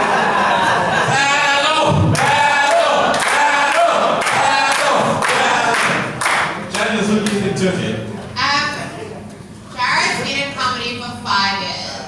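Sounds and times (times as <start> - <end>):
group of voices chanting: 1.1 - 6.1.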